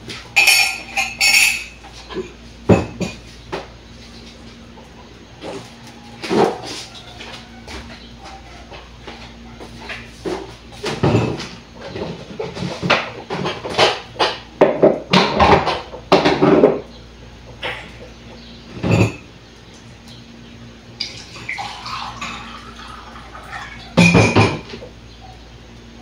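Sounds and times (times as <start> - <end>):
kitchen things knocking and clattering: 0.4 - 3.2, 10.8 - 16.9, 24.0 - 24.8
water poured into a mug: 21.0 - 23.9.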